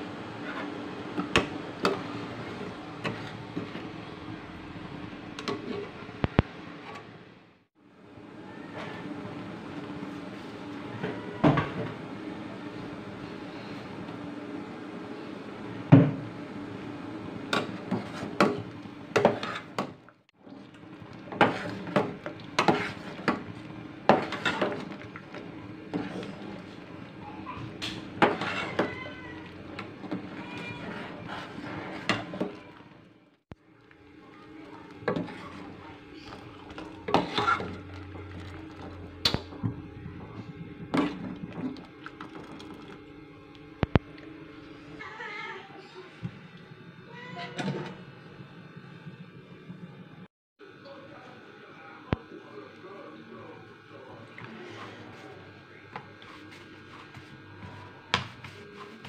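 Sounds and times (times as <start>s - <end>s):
water boiling: 11.8s - 45.0s
liquid simmering: 20.4s - 44.8s
ladle stirring metal pot: 20.6s - 27.0s, 27.7s - 32.6s, 34.9s - 39.0s.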